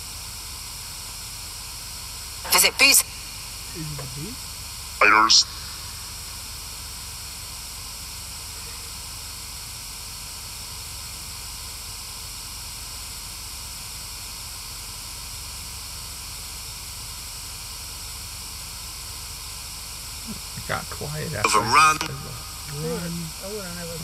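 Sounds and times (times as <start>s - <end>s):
static hiss: 0.0s - 24.0s.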